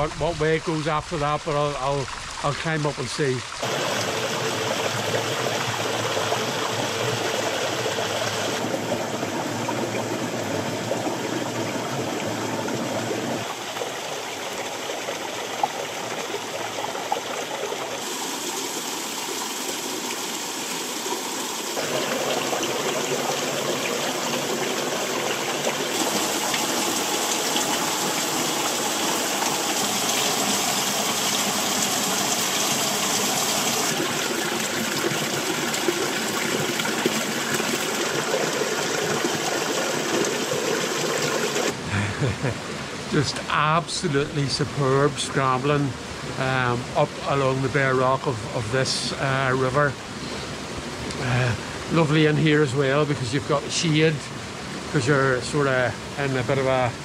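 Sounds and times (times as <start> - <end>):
stream trickling over rocks: 0.0 - 41.9.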